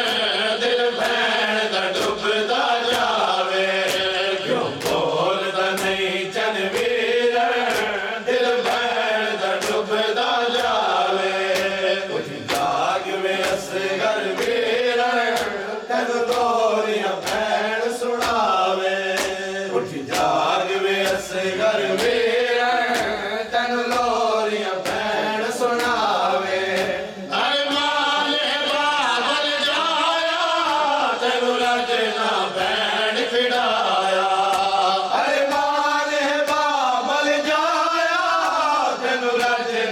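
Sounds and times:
group of men chanting: 0:00.0 - 0:39.9
chest-beating slaps: 0:01.0 - 0:27.1.

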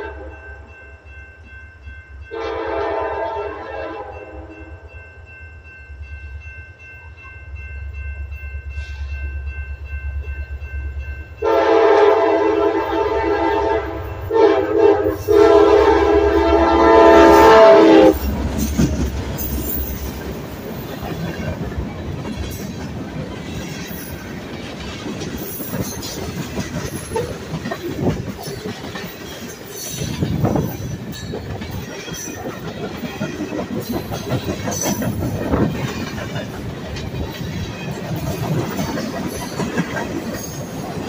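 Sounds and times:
train wheels rumbling on rails: 0:07.0 - 0:41.0
wheels clicking over rail joints: 0:18.1 - 0:41.0.

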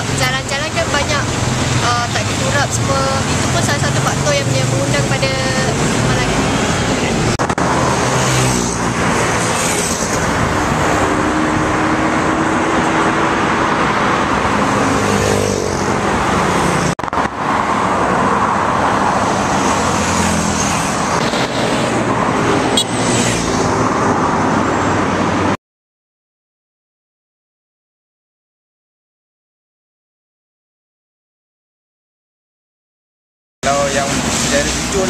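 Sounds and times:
steady road traffic: 0:00.0 - 0:25.6, 0:33.6 - 0:35.0
motorcycles riding past: 0:00.9 - 0:16.9, 0:17.5 - 0:25.4.

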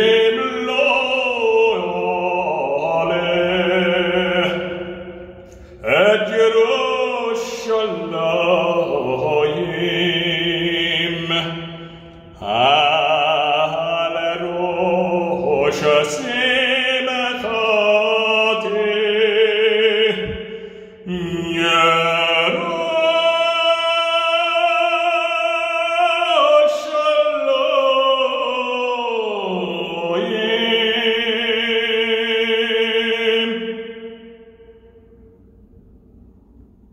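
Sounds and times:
man singing with vibrato: 0:00.0 - 0:35.0.

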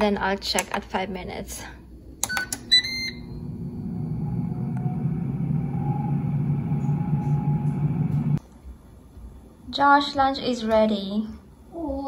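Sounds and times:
air fryer fan humming: 0:02.0 - 0:08.4.

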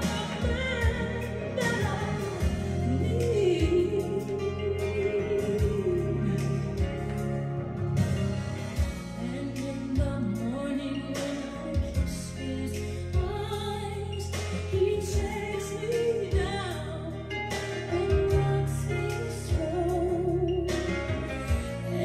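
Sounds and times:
woman singing with vibrato: 0:00.0 - 0:07.6, 0:08.9 - 0:22.0
bass line: 0:00.0 - 0:22.0
drum hits: 0:07.8 - 0:09.2.

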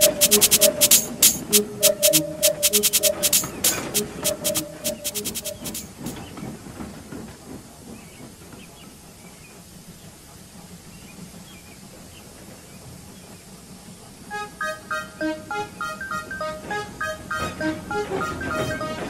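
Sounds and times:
music with sharp clicks: 0:00.0 - 0:06.2.

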